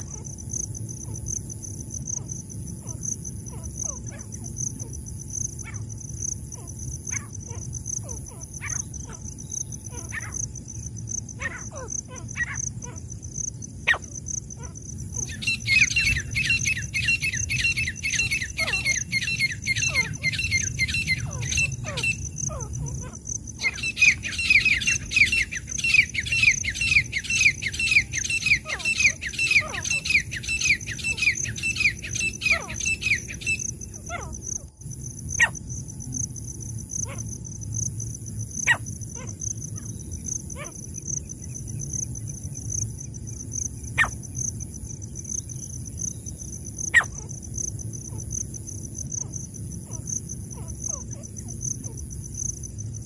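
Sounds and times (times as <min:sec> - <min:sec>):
high insect trill: 0:00.0 - 0:53.0
francolin calling: 0:06.6 - 0:34.7, 0:38.6 - 0:41.8, 0:43.9 - 0:44.3, 0:45.4 - 0:48.3, 0:49.1 - 0:52.0.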